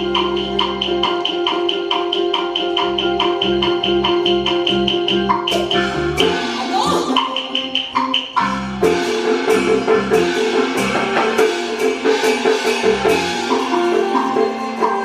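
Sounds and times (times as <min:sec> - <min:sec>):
fast melodic notes: 0:00.0 - 0:15.0
loud percussion strikes: 0:00.0 - 0:15.0
wood-block beats: 0:00.0 - 0:15.0.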